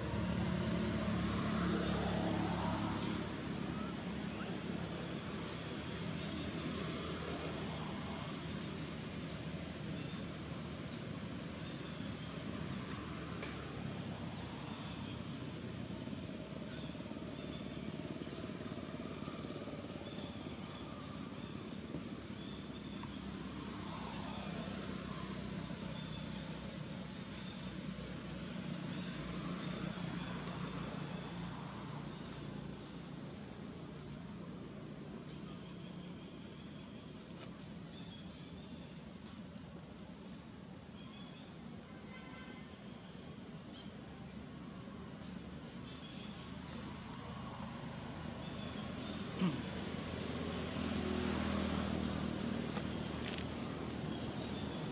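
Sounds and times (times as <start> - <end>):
insects droning: 0.0 - 54.9
outdoor hiss: 0.0 - 54.9.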